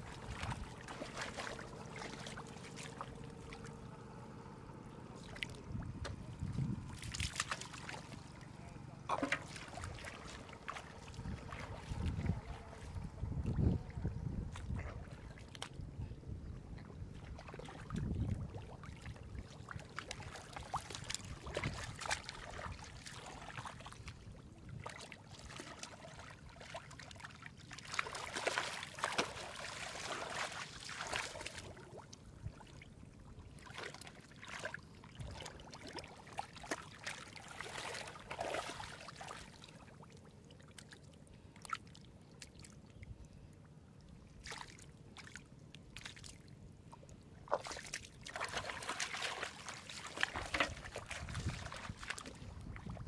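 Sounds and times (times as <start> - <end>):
hands splashing in muddy water: 0.0 - 3.8, 5.2 - 8.5, 9.1 - 13.0, 17.2 - 24.2, 24.8 - 32.6, 33.6 - 40.0, 44.4 - 46.5, 47.4 - 53.0
squelching in wet mud: 0.0 - 53.0.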